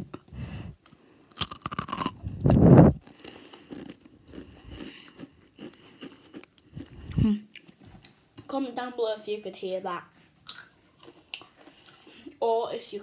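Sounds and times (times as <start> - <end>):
quiet chewing: 0.1 - 8.2, 10.4 - 12.4
tortilla chip crunching: 0.8 - 2.3, 3.0 - 7.2, 10.4 - 12.0.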